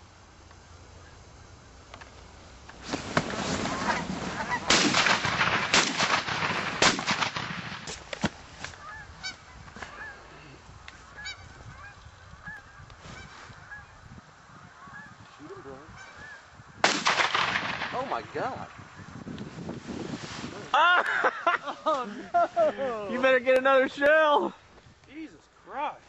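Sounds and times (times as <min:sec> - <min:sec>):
geese honking: 0:03.6 - 0:07.0, 0:08.7 - 0:16.7.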